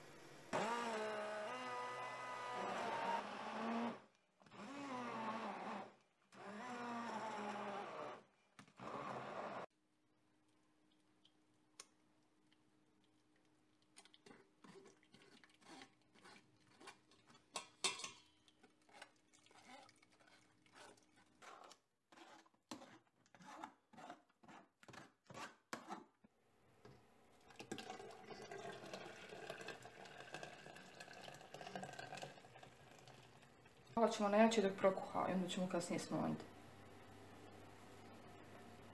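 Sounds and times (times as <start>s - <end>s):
thick puree pouring into pot: 18.3s - 22.4s, 27.3s - 34.0s.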